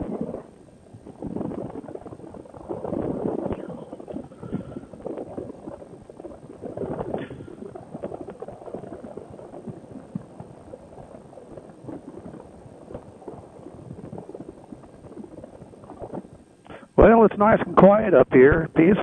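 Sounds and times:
wind buffeting microphone: 0.0 - 10.3.

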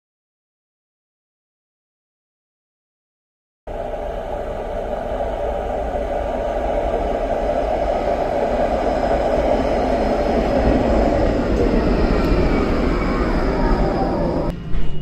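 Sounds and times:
tram wheels rumbling on rails: 3.7 - 15.0.

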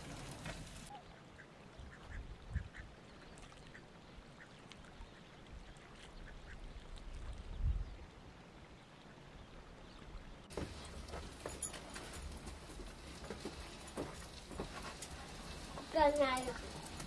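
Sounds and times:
ducks quacking: 0.9 - 3.0.

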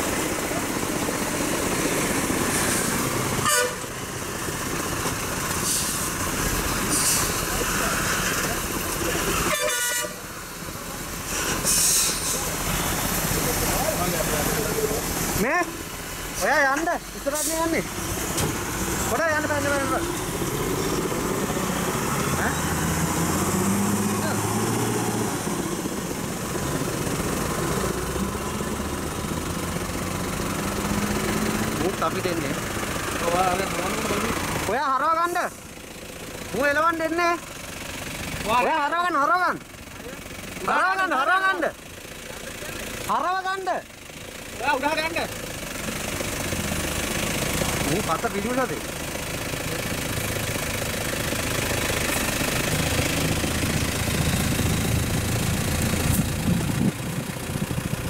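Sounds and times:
vehicle engine and road noise: 0.0 - 58.0
short horn toot: 3.4 - 3.8, 9.4 - 10.2.

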